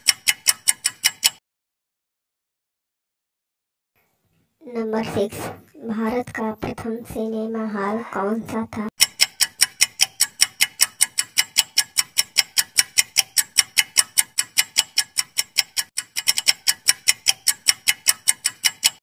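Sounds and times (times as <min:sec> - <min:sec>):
clock ticking: 0:00.0 - 0:01.4, 0:05.9 - 0:19.0.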